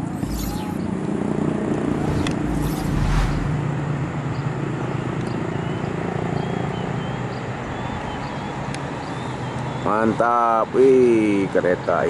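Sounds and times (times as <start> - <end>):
bird chirps: 0.0 - 0.9.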